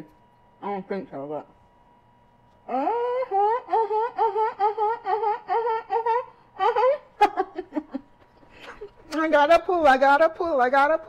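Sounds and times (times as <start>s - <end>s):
woman vocalizing with food in mouth: 2.6s - 7.1s.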